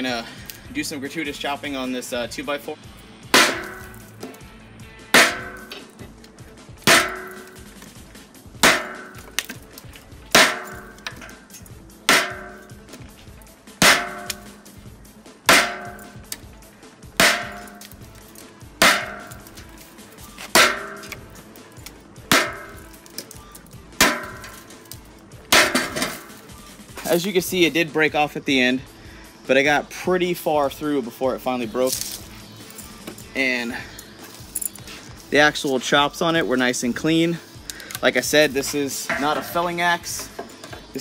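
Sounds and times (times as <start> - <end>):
board breaking: 3.4 - 3.9, 5.2 - 5.7, 6.9 - 7.5, 8.6 - 9.6, 10.4 - 10.8, 13.8 - 14.5, 15.5 - 16.0, 17.2 - 17.9, 20.6 - 21.2
hatchet chopping wood: 3.4 - 4.0, 5.2 - 5.9, 6.8 - 7.8, 8.6 - 11.3, 12.1 - 13.0, 13.8 - 14.7, 15.5 - 16.4, 17.2 - 18.0, 18.8 - 19.6, 20.4 - 21.2, 21.8 - 22.9, 24.0 - 24.6, 25.5 - 26.2.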